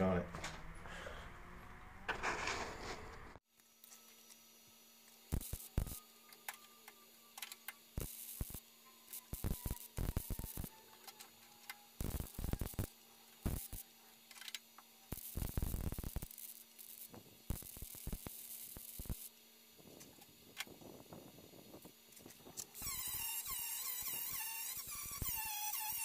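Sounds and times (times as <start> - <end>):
welding arc crackle: 5.1 - 6.0, 7.4 - 26.0.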